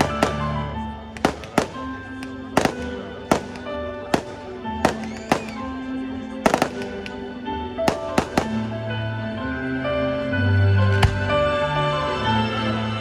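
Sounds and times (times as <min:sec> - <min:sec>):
fireworks bursting with sharp bangs: 0:00.0 - 0:05.8, 0:06.4 - 0:07.2, 0:07.8 - 0:08.8
music playing: 0:00.0 - 0:13.0.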